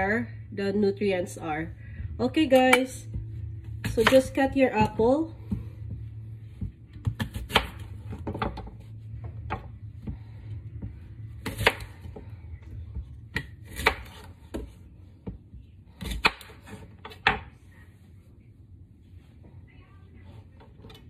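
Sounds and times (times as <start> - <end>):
steady low hum: 0.0 - 21.0
knife slicing apple: 13.3 - 14.7.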